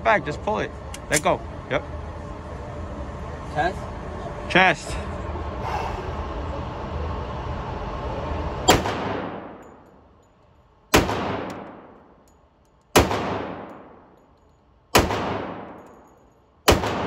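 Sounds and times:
pistol shots echoing indoors: 0:08.7 - 0:09.6, 0:10.9 - 0:12.1, 0:12.9 - 0:14.2, 0:14.9 - 0:17.0.

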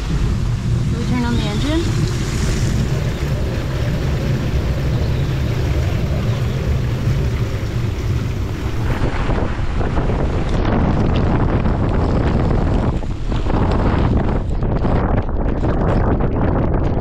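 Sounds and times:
hiss of rain and spray: 0:00.0 - 0:13.6
strong wind rumbling: 0:00.0 - 0:17.0.

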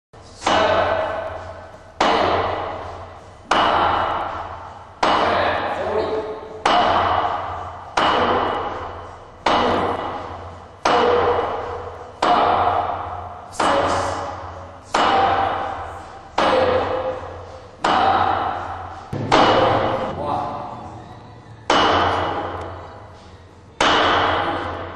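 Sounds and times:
hand striking hard surface: 0:00.4 - 0:04.4, 0:05.0 - 0:10.2, 0:16.4 - 0:21.0, 0:21.6 - 0:23.0, 0:23.8 - 0:24.9.

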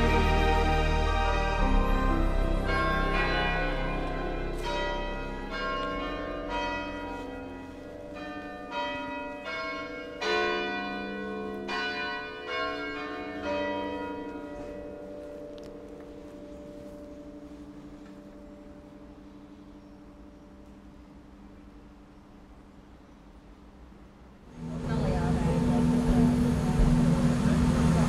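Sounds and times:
bells ringing: 0:00.0 - 0:20.5.

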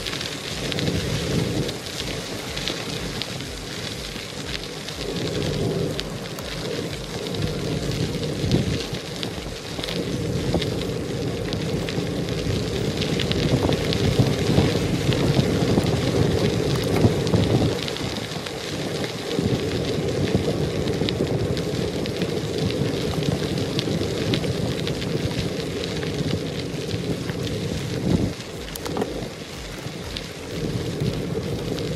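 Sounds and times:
bicycle tyres crunching on gravel: 0:00.0 - 0:31.9
wind rumbling on microphone: 0:00.0 - 0:31.9.

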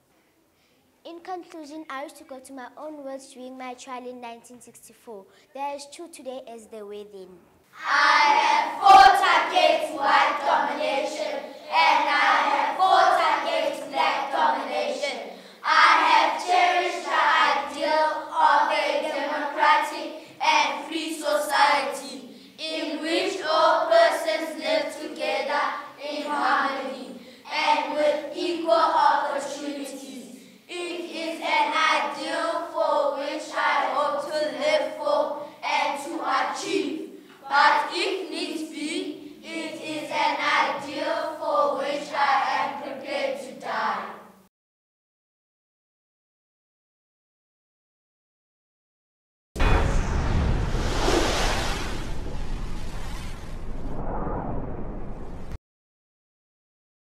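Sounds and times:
children reciting together: 0:07.8 - 0:44.4.

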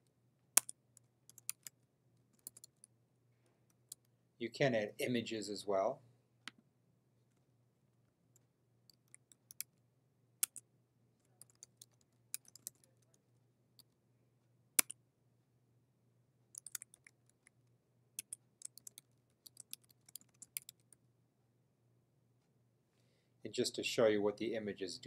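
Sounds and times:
computer keyboard typing: 0:00.6 - 0:01.8, 0:02.4 - 0:02.9, 0:11.4 - 0:13.0, 0:16.6 - 0:17.2, 0:18.2 - 0:20.9.

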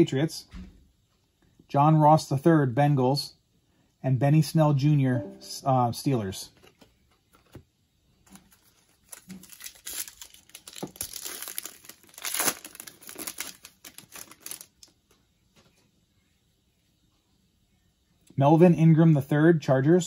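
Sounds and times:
foil wrapper tearing and crinkling: 0:08.3 - 0:15.0.

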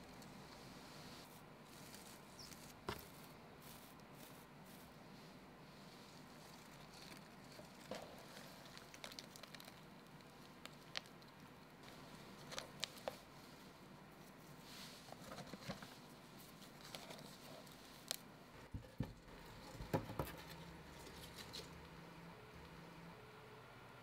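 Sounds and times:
crackles: 0:05.9 - 0:13.3.

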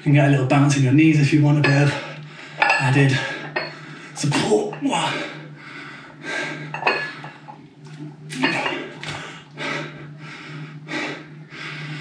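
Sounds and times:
low hum: 0:00.0 - 0:12.0
man breathing hard: 0:01.9 - 0:04.2, 0:05.0 - 0:07.6, 0:08.6 - 0:12.0.

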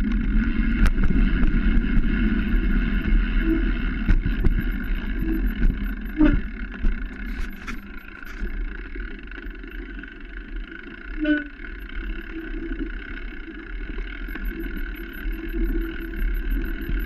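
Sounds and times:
wind on microphone: 0:00.0 - 0:08.5
tyres on dirt: 0:00.0 - 0:08.6
bike rattles: 0:00.0 - 0:15.0.

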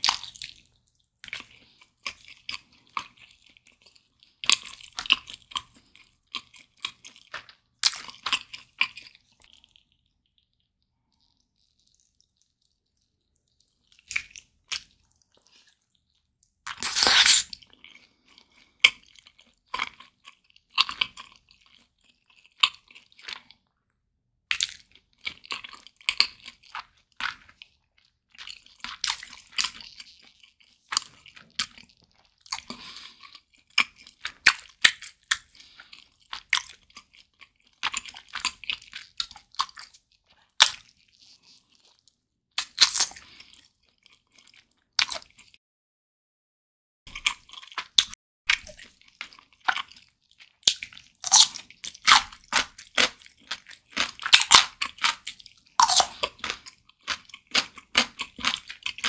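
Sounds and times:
wet chewing: 0:00.0 - 0:23.7, 0:24.5 - 0:45.6, 0:47.1 - 0:59.0
biting into chicken: 0:16.7 - 0:17.7, 0:50.7 - 0:59.0.

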